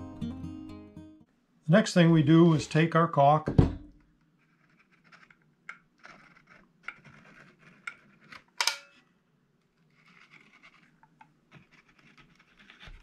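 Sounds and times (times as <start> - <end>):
squeeze tube clicks and scrapes: 4.4 - 8.8, 9.6 - 13.0.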